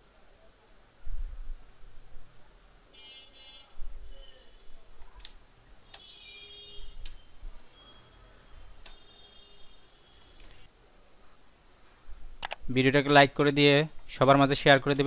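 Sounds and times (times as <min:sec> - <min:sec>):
computer mouse clicks: 0:00.0 - 0:01.8, 0:04.2 - 0:06.1, 0:07.0 - 0:09.8, 0:12.2 - 0:12.7.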